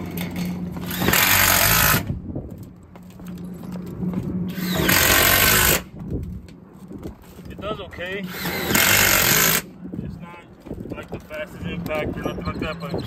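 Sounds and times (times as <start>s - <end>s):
impact driver hammering screws: 0.8s - 2.1s, 4.5s - 5.9s, 8.3s - 9.6s.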